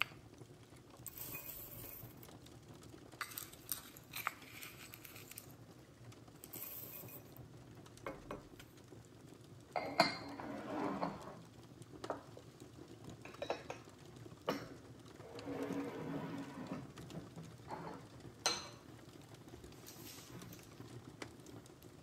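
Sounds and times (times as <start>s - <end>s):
wooden scoop scraping ceramic bowl: 3.2s - 5.5s, 10.3s - 11.4s, 15.3s - 16.9s.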